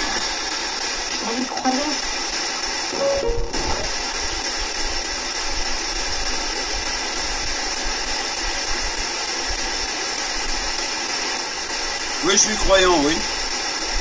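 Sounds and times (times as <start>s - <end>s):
static hiss: 0.0s - 14.0s.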